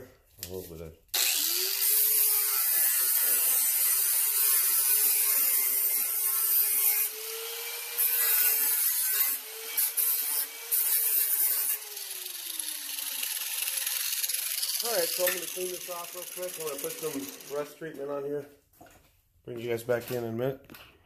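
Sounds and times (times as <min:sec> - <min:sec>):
grinder motor spinning down: 0:01.2 - 0:02.2, 0:11.7 - 0:17.6
angle grinder grinding sheet steel: 0:01.2 - 0:18.1.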